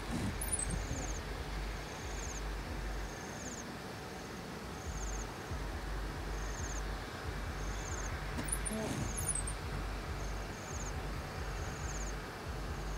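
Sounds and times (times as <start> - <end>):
insect chirping trills: 0.0 - 12.9
soft outdoor hiss: 0.0 - 12.9
steady low rumble: 0.0 - 12.9.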